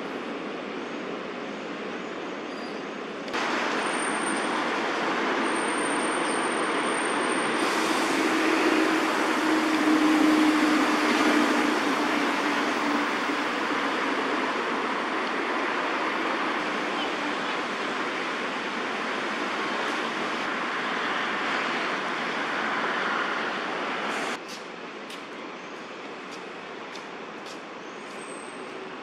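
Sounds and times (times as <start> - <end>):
road traffic noise: 0.0 - 29.0
passing vehicle hum: 3.4 - 24.4.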